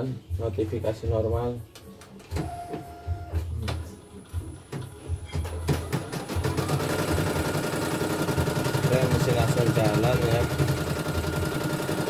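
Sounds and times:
embroidery machine stitching: 0:05.7 - 0:12.0.

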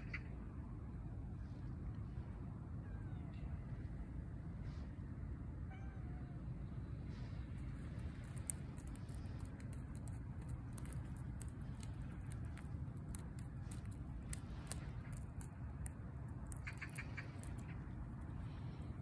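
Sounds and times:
steady low rumble: 0:00.0 - 0:19.0
cat claws scratching bark: 0:07.5 - 0:19.0.

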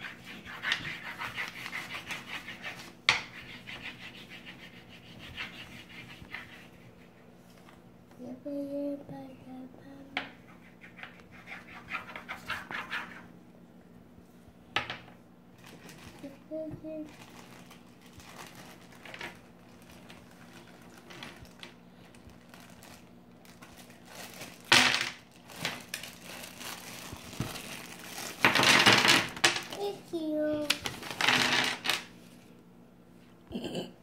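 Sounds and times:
crayon scribbling on paper: 0:00.0 - 0:06.9.

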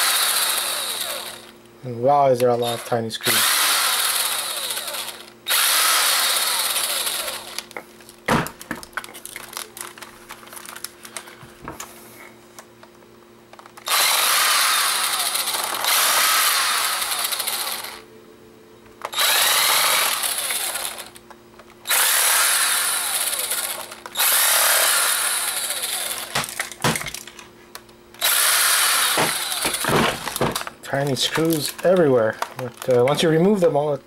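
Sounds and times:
power driver spinning out screws: 0:00.0 - 0:01.5, 0:02.6 - 0:07.7, 0:13.8 - 0:18.0, 0:19.1 - 0:21.2, 0:21.9 - 0:27.2, 0:28.2 - 0:30.6.

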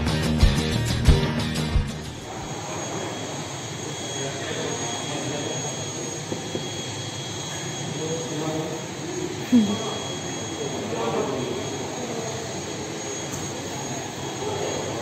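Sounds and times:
guitar music: 0:00.0 - 0:02.3
aircraft turbine engine whine: 0:00.0 - 0:15.0
thin high tone: 0:00.0 - 0:15.0.

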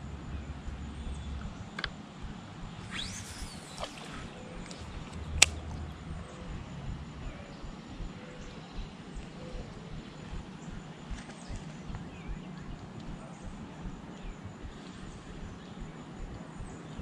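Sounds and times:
faint outdoor background: 0:00.0 - 0:17.0
fishing reel click: 0:02.8 - 0:05.7.

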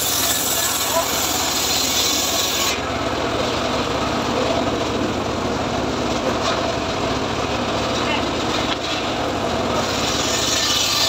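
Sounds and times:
saw blade cutting wood hiss: 0:00.0 - 0:02.9, 0:09.8 - 0:11.0
circular saw running: 0:00.0 - 0:11.0.

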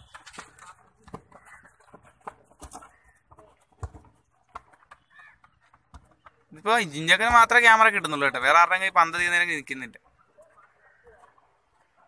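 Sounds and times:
ball being kicked: 0:00.1 - 0:06.4.

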